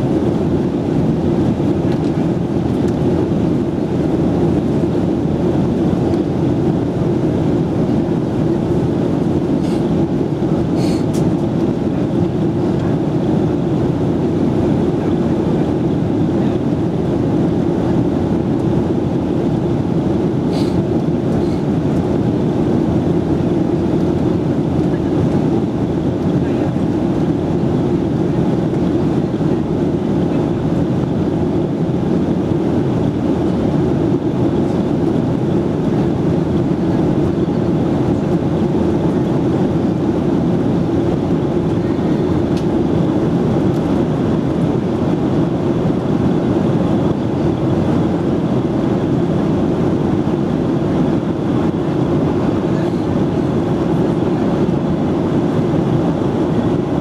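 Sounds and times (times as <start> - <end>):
airliner cabin roar: 0.0 - 57.0.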